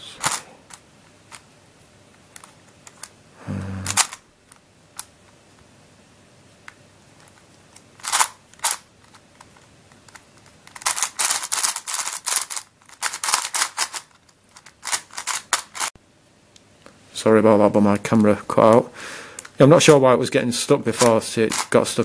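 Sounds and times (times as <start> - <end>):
puzzle cube clicking: 2.3 - 5.1, 7.2 - 15.9.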